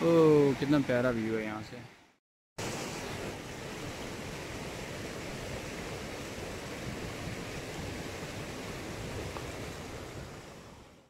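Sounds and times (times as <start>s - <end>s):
stream rushing over rocks: 2.6s - 11.0s.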